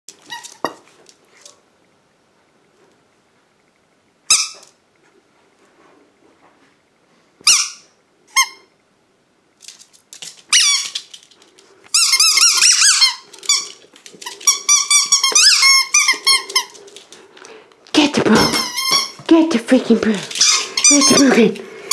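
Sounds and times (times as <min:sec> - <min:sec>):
rubber squeaky toy squeaking: 0:14.5 - 0:16.7.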